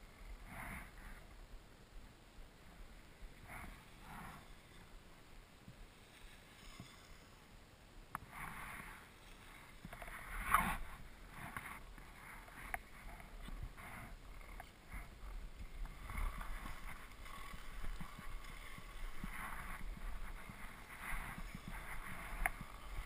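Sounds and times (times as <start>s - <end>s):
skis swishing on snow: 8.2s - 23.0s.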